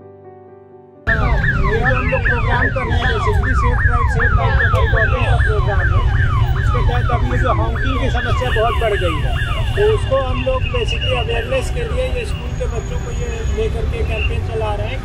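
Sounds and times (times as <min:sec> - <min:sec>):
electronic siren alarm sweeps: 0:01.1 - 0:11.6
low rumble of street noise: 0:01.1 - 0:15.0.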